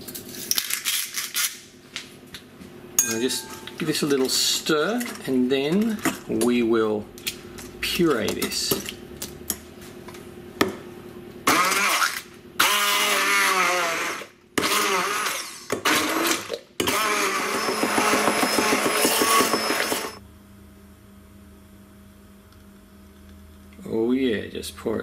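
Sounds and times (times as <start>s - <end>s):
stick blender whirring: 11.4s - 20.2s.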